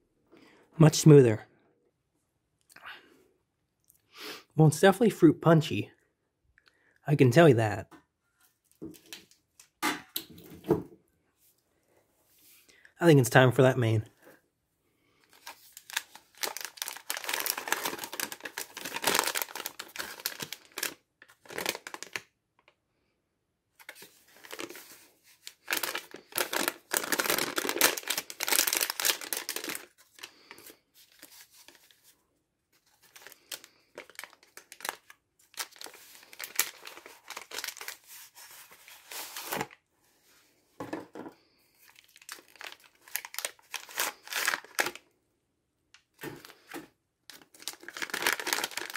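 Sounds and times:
packaging crinkling and tearing: 0:15.3 - 0:22.3, 0:23.8 - 0:32.0, 0:32.8 - 0:39.8, 0:41.8 - 0:45.0, 0:46.2 - 0:48.9.

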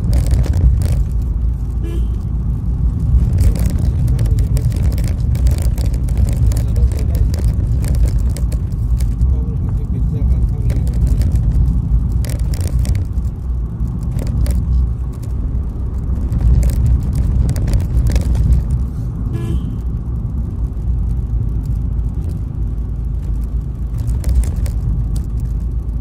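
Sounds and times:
knocks and rattles: 0:00.0 - 0:01.4, 0:03.1 - 0:09.2, 0:10.3 - 0:15.4, 0:16.0 - 0:18.8, 0:23.3 - 0:25.6
vehicle cabin engine and road rumble: 0:00.0 - 0:26.0.

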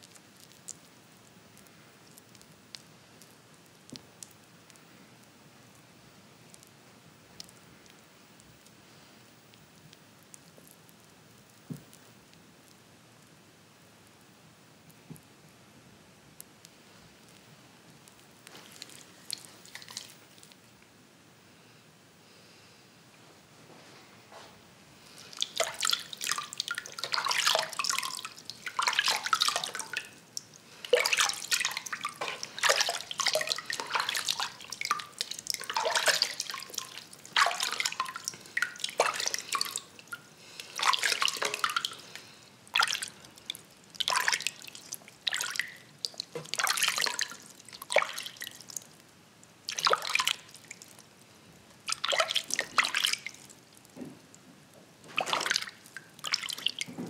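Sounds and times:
hands splashing in water: 0:25.2 - 0:30.2, 0:30.8 - 0:42.2, 0:42.8 - 0:43.2, 0:51.9 - 0:53.4, 0:55.2 - 0:56.9.

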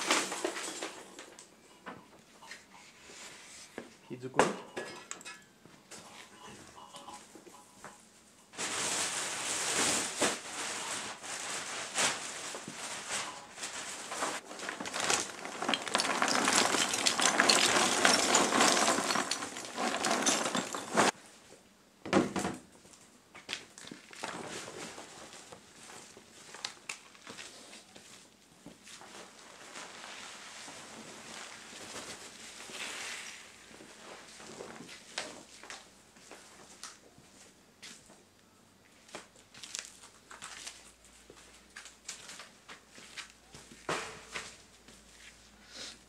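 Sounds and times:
charcoal clattering into plastic bag: 0:00.0 - 0:01.4, 0:08.6 - 0:21.2.

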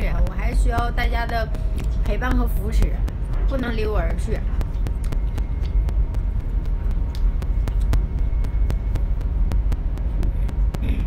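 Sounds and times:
train rumble inside carriage: 0:00.0 - 0:04.9.

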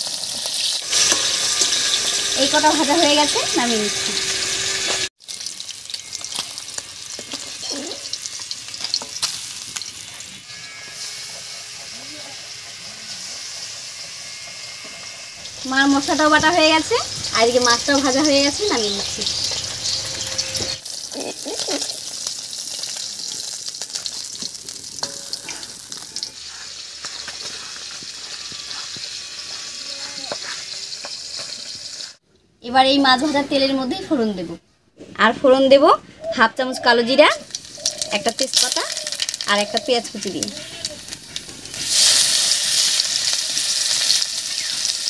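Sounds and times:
metal spatula in pan: 0:00.0 - 0:11.4, 0:15.7 - 0:32.2
fish sizzling in hot oil: 0:00.0 - 0:32.2, 0:37.4 - 0:45.0
spatula clicking and scraping: 0:22.8 - 0:31.8.

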